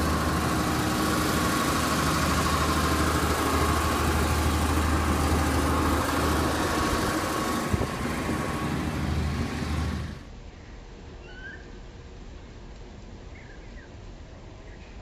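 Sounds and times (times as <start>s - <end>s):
diesel railcar idling: 0.0s - 10.3s
faint bird chirps: 10.6s - 11.7s, 13.3s - 14.0s.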